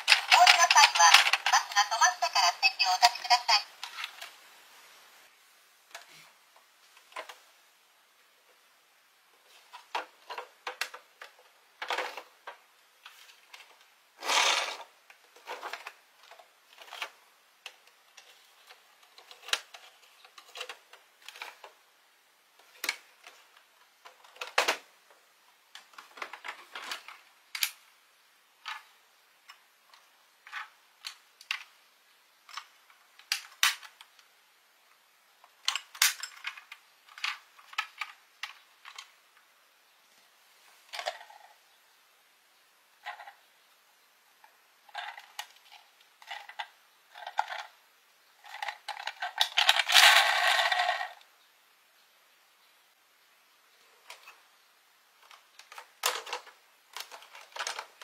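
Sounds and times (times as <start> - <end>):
toy buses clicking and knocking: 0.0 - 4.3, 9.7 - 21.8, 22.6 - 27.8, 28.6 - 31.8, 32.4 - 34.3, 35.4 - 39.5, 43.0 - 43.4, 44.9 - 47.8, 48.4 - 51.2, 55.1 - 58.0.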